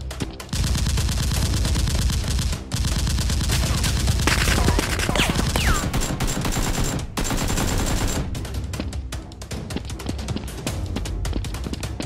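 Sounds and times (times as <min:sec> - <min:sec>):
automatic gunfire: 0:00.5 - 0:08.4.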